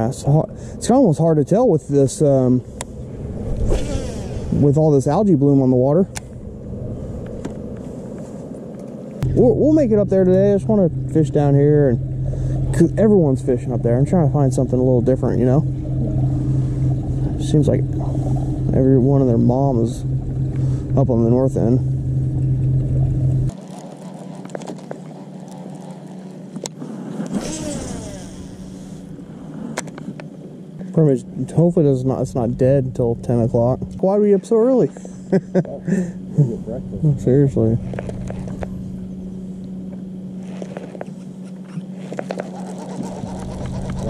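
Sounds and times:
boat motor humming: 0:00.0 - 0:44.0
fishing reel cranking: 0:42.3 - 0:44.0.

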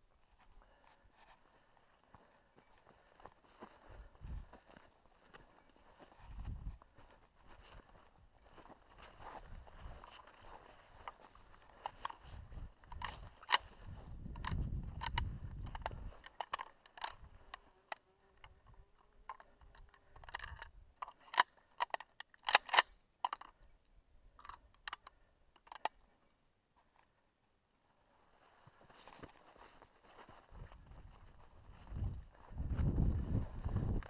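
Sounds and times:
footsteps through dry bracken: 0:00.0 - 0:20.2, 0:28.1 - 0:34.0
low rumble of body movement: 0:03.0 - 0:16.3, 0:28.4 - 0:34.0.

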